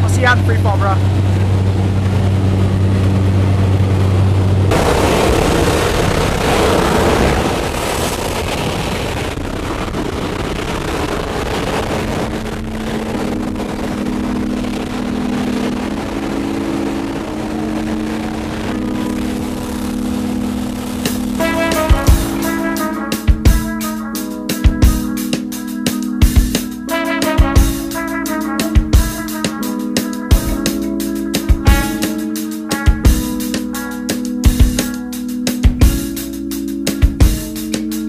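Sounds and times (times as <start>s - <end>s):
airplane engine drone: 0.0s - 38.0s
loud rush of wind: 1.0s - 24.1s
music with held notes: 12.9s - 38.0s.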